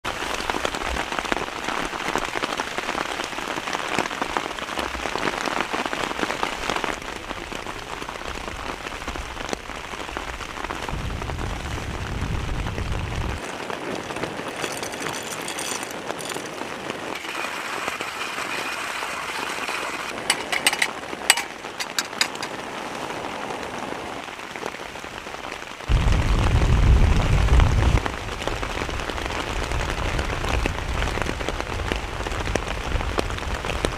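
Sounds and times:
heavy rain falling: 0.0 - 33.9.

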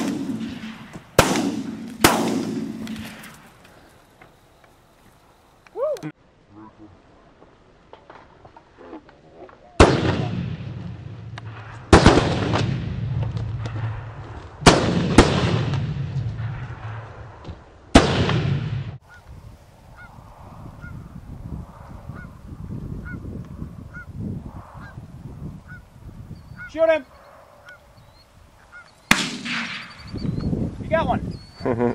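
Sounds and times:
shotgun blasts: 0.0 - 3.4, 9.8 - 17.2, 17.9 - 19.0, 29.1 - 30.1
geese honking: 28.6 - 29.0.

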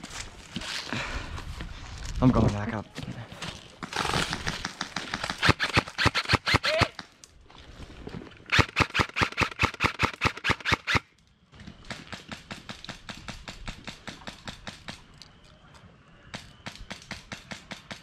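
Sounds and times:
airsoft rifle shots: 3.9 - 7.1, 8.5 - 11.0, 16.4 - 18.0.

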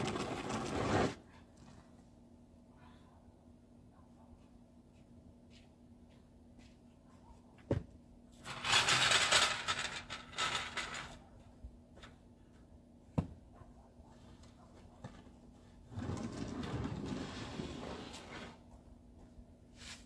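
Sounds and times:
snow shovel scraping pavement: 0.0 - 1.2, 15.9 - 18.6.

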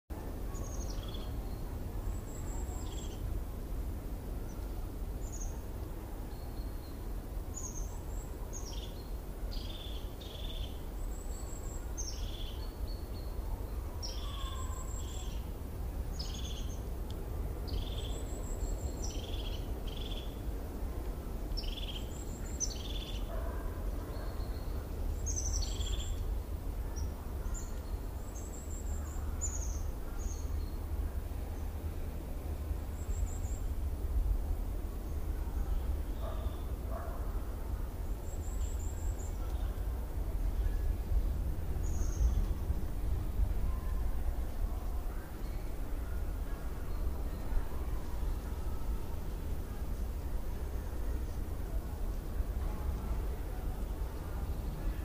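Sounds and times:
birds chirping: 35.0 - 37.2.

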